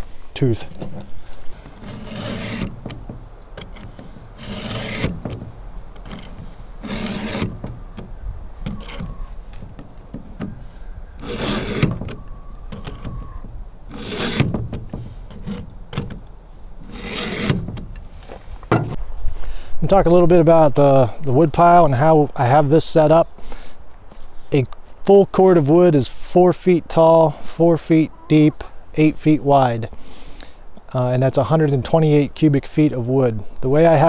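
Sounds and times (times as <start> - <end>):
file rasping on chainsaw chain: 1.7 - 2.8, 3.6 - 5.2, 6.1 - 7.6, 11.2 - 12.0, 13.9 - 14.5, 16.9 - 17.6.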